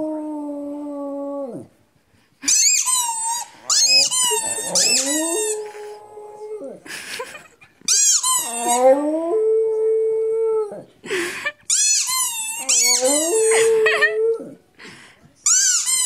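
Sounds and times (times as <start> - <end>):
dog howling: 3.6 - 6.8, 12.6 - 14.6.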